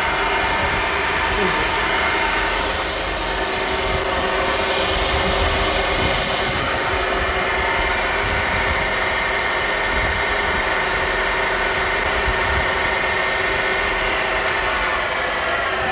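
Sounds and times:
milling machine whirring: 0:00.0 - 0:15.9.

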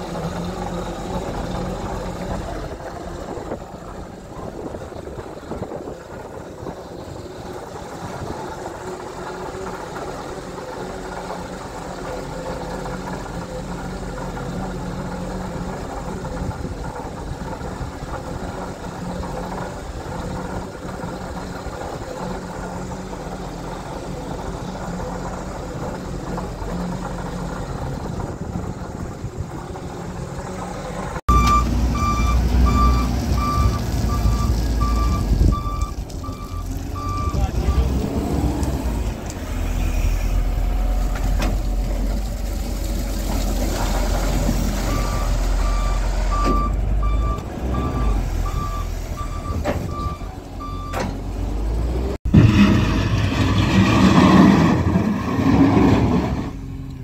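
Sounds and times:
diesel engine running: 0:00.0 - 0:57.0
reversing alarm beeps: 0:31.3 - 0:37.9, 0:44.9 - 0:51.1.

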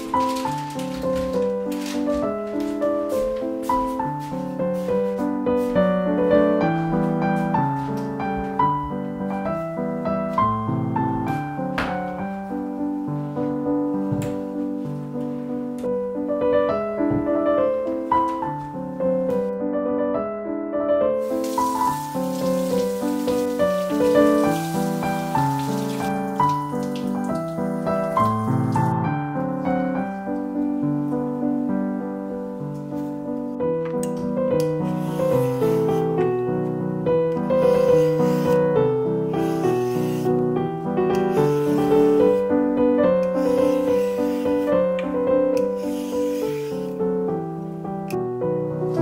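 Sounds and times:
slow piano music: 0:00.0 - 0:49.0.

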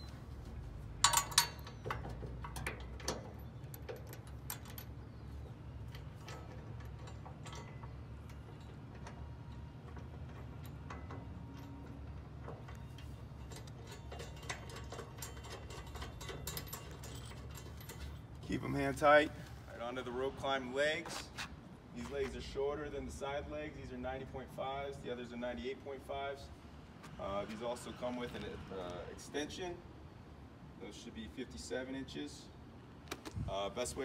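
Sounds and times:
metal bolts clicking into bracket: 0:01.0 - 0:18.2.

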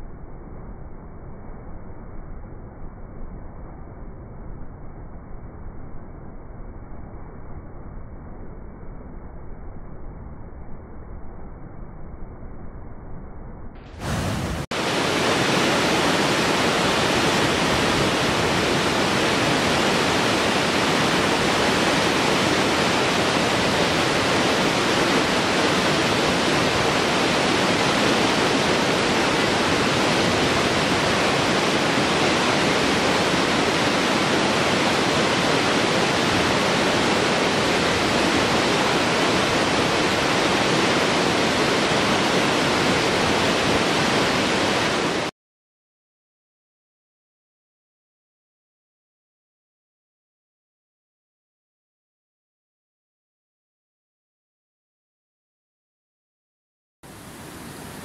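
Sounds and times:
waterfall rushing over rocks: 0:14.0 - 0:45.3, 0:57.1 - 0:58.0.

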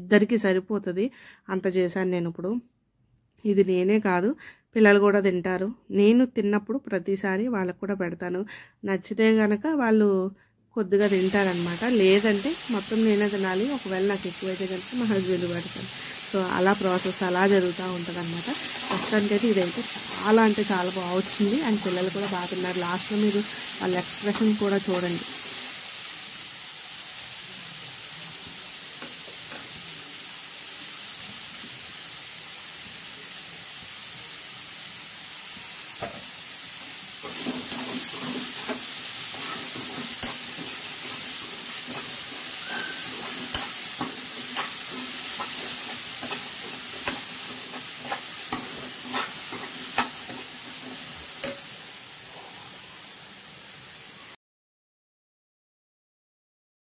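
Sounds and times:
vegetables sizzling in a pan: 0:11.0 - 0:54.4
steel spoon scraping a pan: 0:15.1 - 0:25.8, 0:36.7 - 0:51.8.

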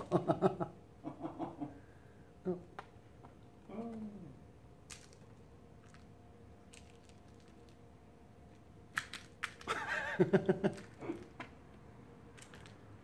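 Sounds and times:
person laughing softly: 0:00.0 - 0:02.7, 0:09.7 - 0:11.4.

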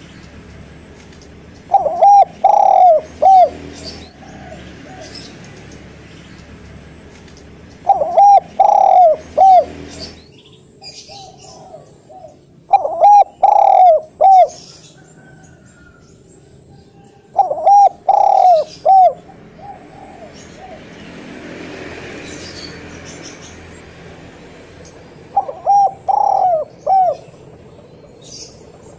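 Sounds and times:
dove cooing: 0:01.6 - 0:05.8, 0:07.8 - 0:10.2, 0:10.8 - 0:16.0, 0:17.0 - 0:21.0, 0:25.0 - 0:28.9.

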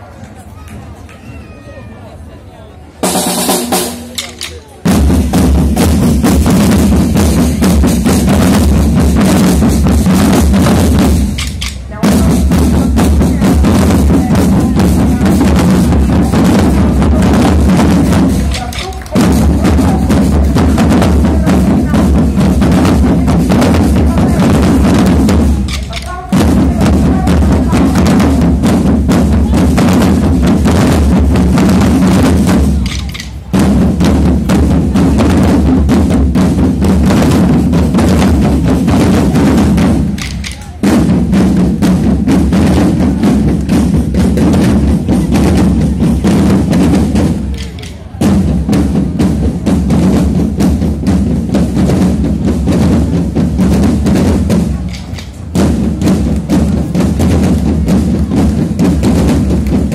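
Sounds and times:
snare and bass drums rolling: 0:03.0 - 0:59.9.

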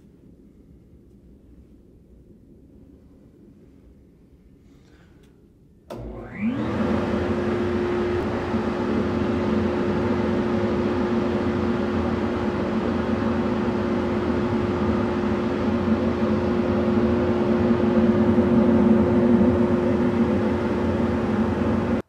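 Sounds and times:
blower whining: 0:05.9 - 0:22.0.

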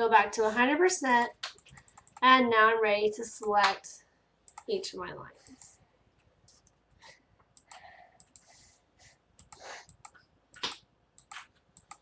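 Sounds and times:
computer mouse clicking: 0:01.4 - 0:02.3, 0:04.5 - 0:04.7, 0:06.5 - 0:06.8, 0:07.5 - 0:08.5, 0:09.4 - 0:12.0.

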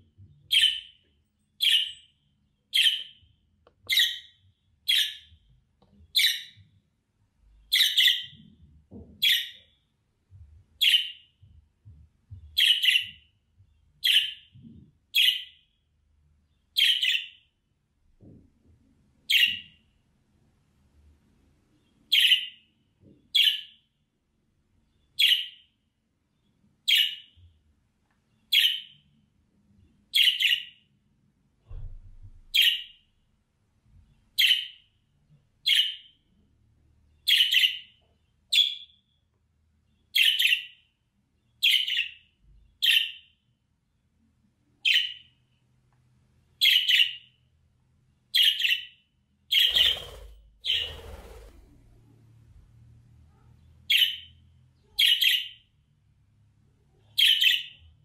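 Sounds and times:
budgie chirping: 0:49.5 - 0:51.1.

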